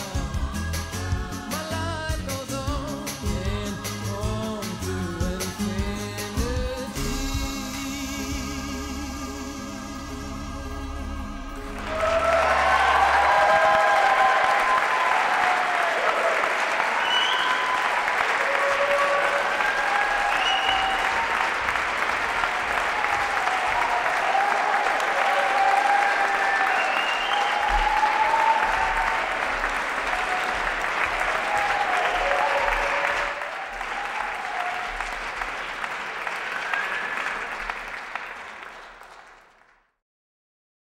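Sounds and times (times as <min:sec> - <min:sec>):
audience applauding: 0:11.6 - 0:40.0
voices over clapping: 0:11.8 - 0:39.4.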